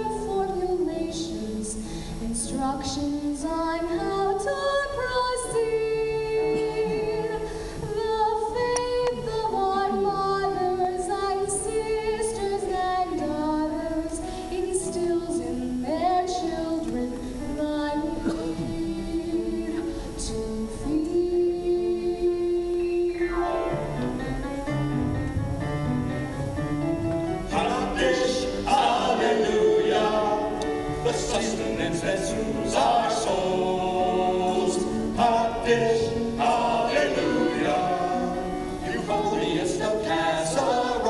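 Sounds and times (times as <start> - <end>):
gospel choir singing: 27.4 - 41.0.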